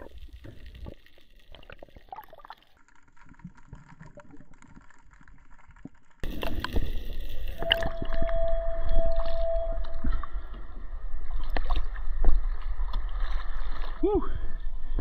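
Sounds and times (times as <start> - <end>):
small underwater clicks and crackles: 0.0 - 15.0
boat on water with low rumble: 6.2 - 15.0
steady tone: 7.6 - 11.4.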